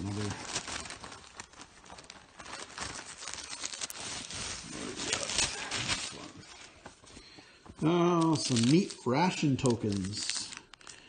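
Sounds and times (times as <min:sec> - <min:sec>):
paper coupons shifting: 0:00.0 - 0:11.0
plastic bag crinkling: 0:00.0 - 0:11.0.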